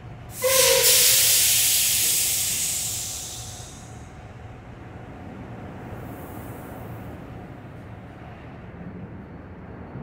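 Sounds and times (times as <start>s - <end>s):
compressed air hissing: 0.3s - 4.0s.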